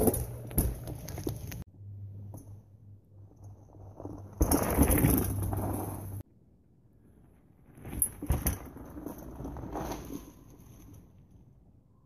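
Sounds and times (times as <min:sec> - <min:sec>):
bike tyres crunching over dirt: 0:00.0 - 0:01.7, 0:03.2 - 0:06.2, 0:07.6 - 0:11.1.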